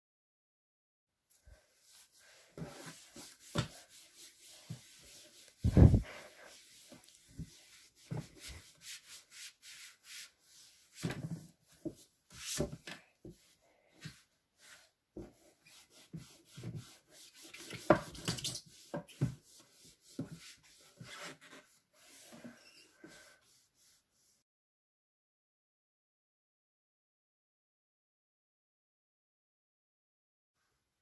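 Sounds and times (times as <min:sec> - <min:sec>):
cloth rubbing inside drawer: 0:04.8 - 0:06.2.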